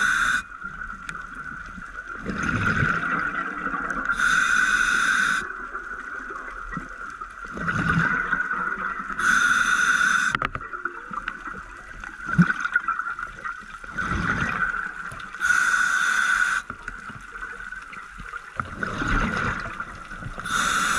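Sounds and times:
regulator inhalation hiss: 0:00.0 - 0:00.5, 0:04.1 - 0:05.5, 0:09.2 - 0:10.4, 0:15.4 - 0:16.7, 0:20.4 - 0:20.9
exhaled bubbles bursting: 0:02.0 - 0:04.2, 0:05.4 - 0:09.2, 0:10.6 - 0:15.2, 0:18.6 - 0:20.6.

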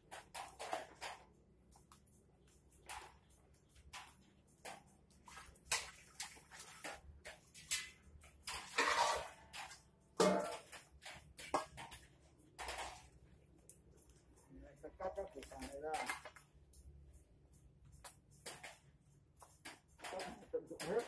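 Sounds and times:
metal basins clinking and knocking: 0:02.8 - 0:13.3, 0:14.9 - 0:16.5
water poured from a basin: 0:03.9 - 0:13.2.

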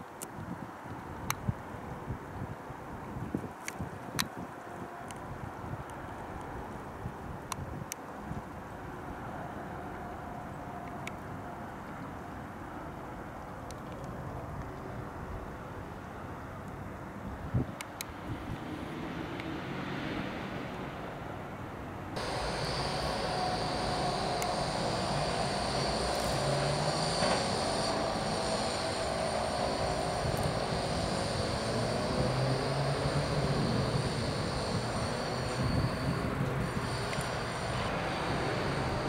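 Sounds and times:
traffic hum: 0:04.6 - 0:39.0
high-pitched whine: 0:22.2 - 0:39.0.

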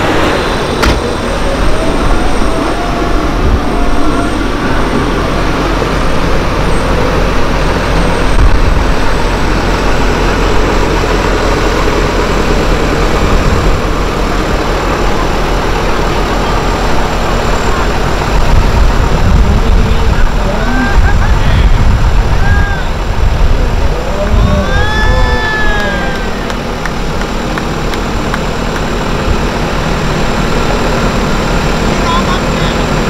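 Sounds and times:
diesel machinery rumbling: 0:00.0 - 0:33.0.

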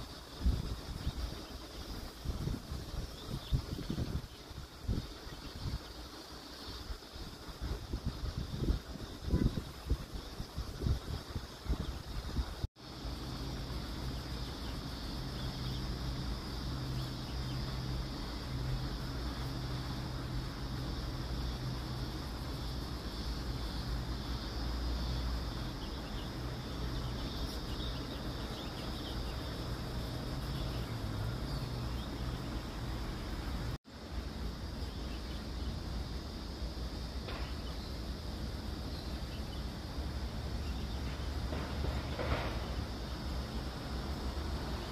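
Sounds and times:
wind buffeting microphone: 0:00.0 - 0:12.7
low mechanical hum: 0:00.0 - 0:44.9.

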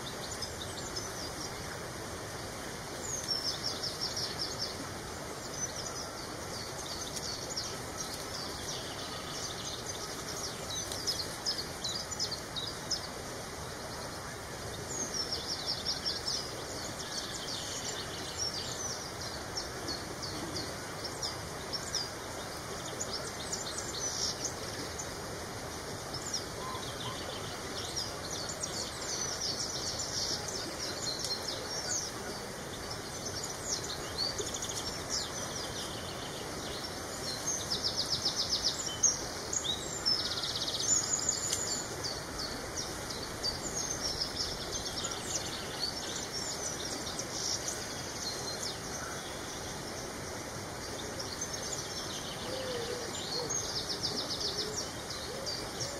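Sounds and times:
outdoor hiss: 0:00.0 - 0:55.9.

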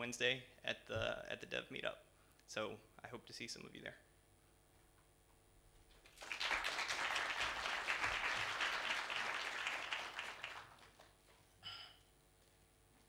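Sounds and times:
audience applauding: 0:06.0 - 0:11.3.

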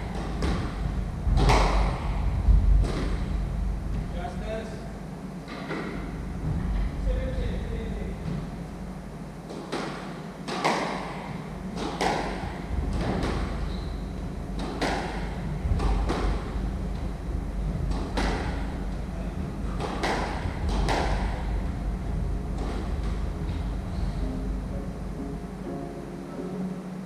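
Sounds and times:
squash ball knocks: 0:00.0 - 0:03.3, 0:09.4 - 0:13.7, 0:14.5 - 0:17.1, 0:17.8 - 0:21.7.

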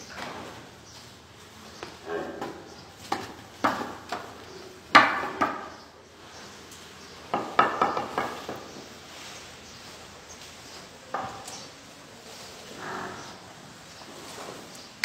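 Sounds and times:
hooves knocking on concrete: 0:01.0 - 0:12.0.

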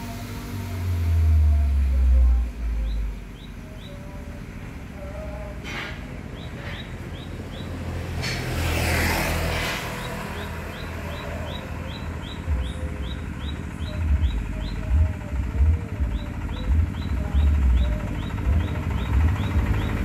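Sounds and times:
motorcycle passing: 0:06.2 - 0:20.0
bird chirping rising notes: 0:06.3 - 0:08.2, 0:09.3 - 0:15.0, 0:16.0 - 0:20.0.

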